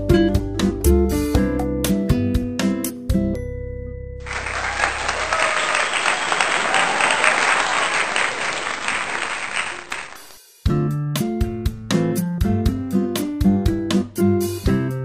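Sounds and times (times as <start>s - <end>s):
audience applause: 4.2s - 10.4s
people cheering: 4.2s - 10.4s.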